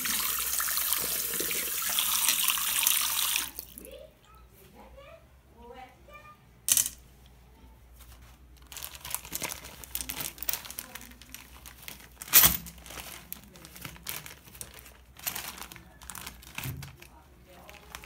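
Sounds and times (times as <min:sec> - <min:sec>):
plastic packaging crinkling: 0:08.6 - 0:18.0.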